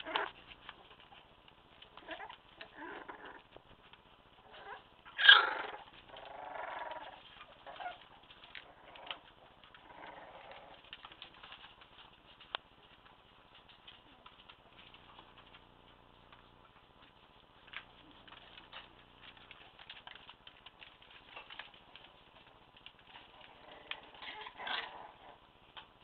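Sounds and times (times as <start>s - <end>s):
puppies vocalising: 0.0s - 25.5s
puppy yelp: 2.0s - 3.4s, 4.4s - 11.6s, 23.2s - 25.4s.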